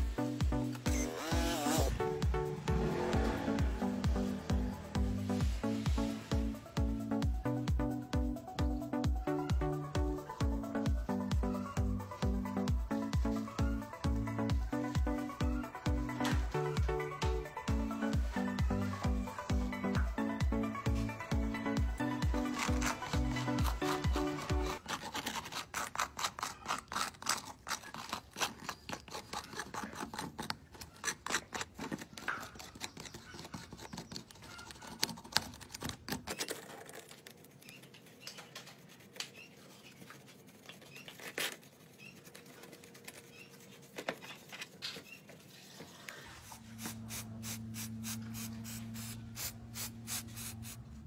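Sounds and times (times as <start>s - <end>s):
scraper scraping glass screen: 0.7s - 2.0s, 22.0s - 50.8s
soft brushing: 37.4s - 50.9s.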